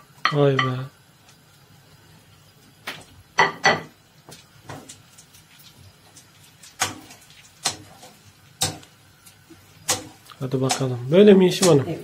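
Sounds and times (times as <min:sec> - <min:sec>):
utensils and pans knocking: 0:03.4 - 0:03.9, 0:06.8 - 0:08.9, 0:09.8 - 0:12.0.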